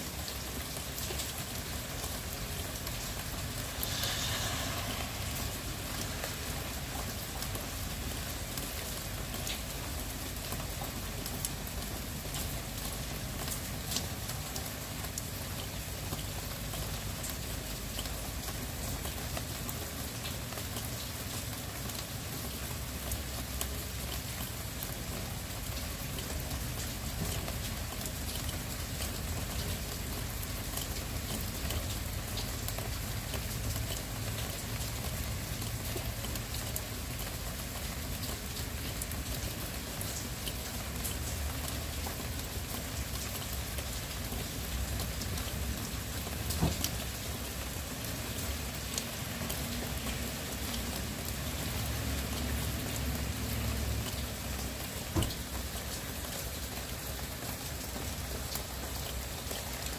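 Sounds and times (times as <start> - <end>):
fine scattered drips: 0.0 - 59.9
steady rain falling: 0.0 - 59.9.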